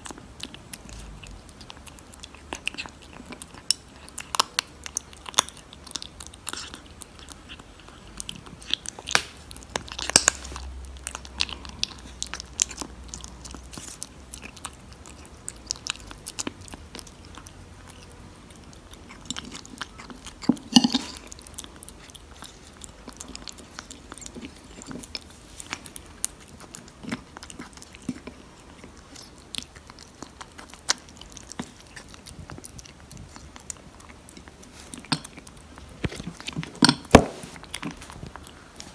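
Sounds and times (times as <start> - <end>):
kitten crunching food: 0.0 - 38.9.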